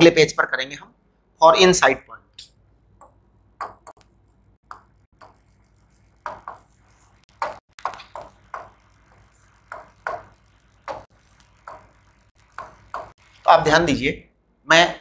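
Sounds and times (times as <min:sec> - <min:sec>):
stylus tapping on glass: 0:03.0 - 0:04.0.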